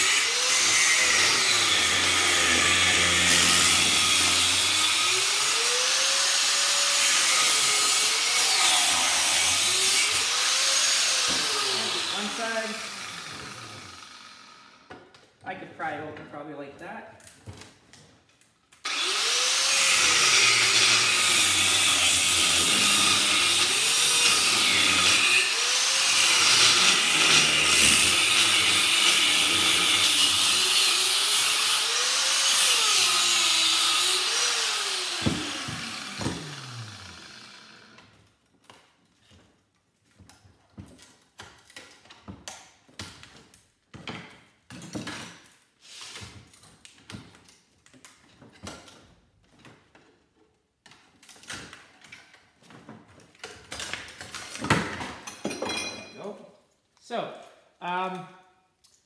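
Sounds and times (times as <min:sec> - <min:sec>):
angle grinder cutting metal: 0:00.0 - 0:14.8, 0:18.8 - 0:38.0
grinder spinning down whine: 0:33.0 - 0:37.9.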